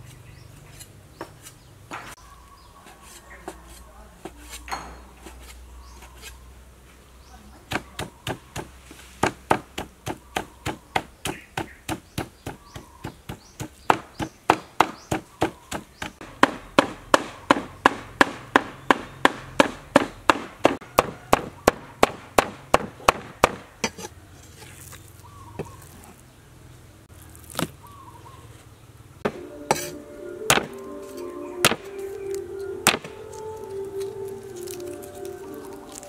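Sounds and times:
cleaver chopping on wooden board: 7.7s - 24.1s, 30.5s - 30.8s, 31.6s - 31.9s, 32.8s - 33.2s.

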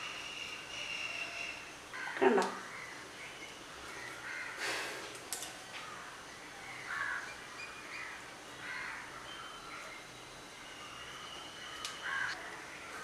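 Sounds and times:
crows cawing: 2.0s - 3.0s, 3.9s - 4.7s, 6.9s - 7.3s, 8.0s - 9.3s, 12.0s - 12.5s.

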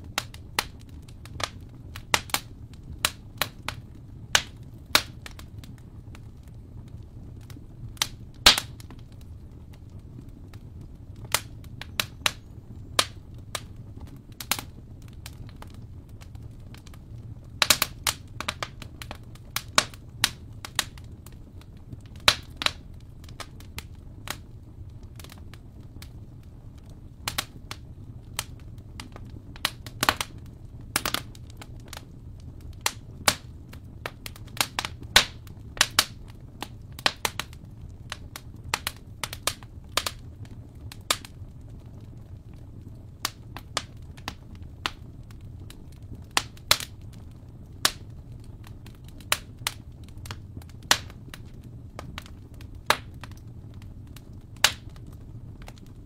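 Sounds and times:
wood fire crackling: 0.0s - 56.0s.

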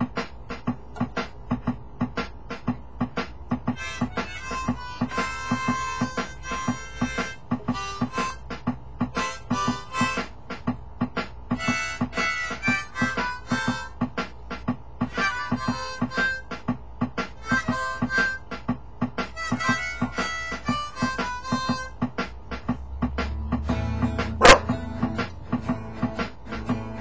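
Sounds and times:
backing drum beat: 0.0s - 27.0s
blues harmonica wailing: 3.7s - 10.4s, 11.5s - 14.0s, 15.1s - 16.6s, 17.4s - 18.6s, 19.2s - 22.0s.

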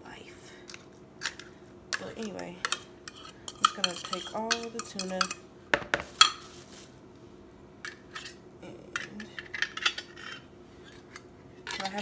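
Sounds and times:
taps on plastic bowl: 5.7s - 6.1s.

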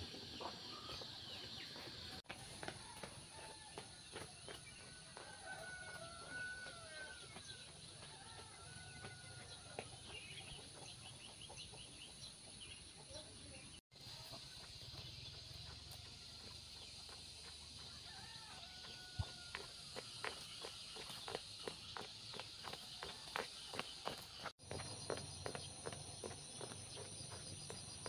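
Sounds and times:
footsteps: 14.2s - 28.0s.

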